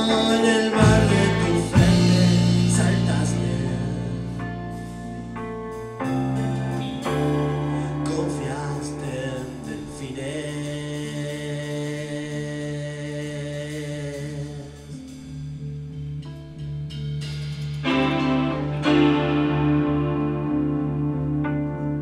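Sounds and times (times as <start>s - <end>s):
rock band playing live: 0.0s - 11.5s, 16.5s - 22.0s.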